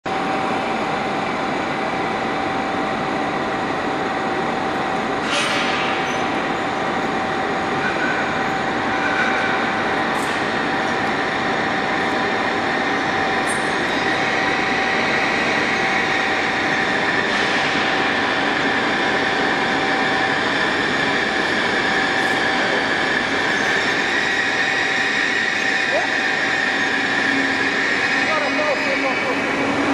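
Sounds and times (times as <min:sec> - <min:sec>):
electric train rolling with whine: 0:00.1 - 0:29.9
high brake squeal: 0:07.7 - 0:10.4, 0:21.9 - 0:29.3.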